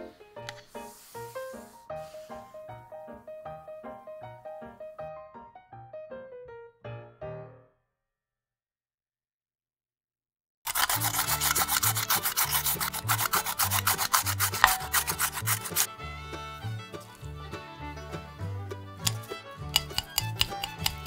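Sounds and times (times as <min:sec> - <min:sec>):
background music: 0:00.0 - 0:07.6, 0:10.7 - 0:21.0
carrot rasping on grater: 0:10.7 - 0:15.9, 0:19.0 - 0:21.0.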